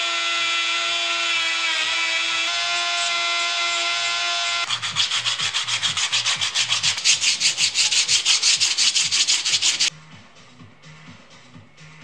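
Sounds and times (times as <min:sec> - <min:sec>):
sandpaper scraping wood: 0:00.9 - 0:09.9
faint background music: 0:04.7 - 0:12.0.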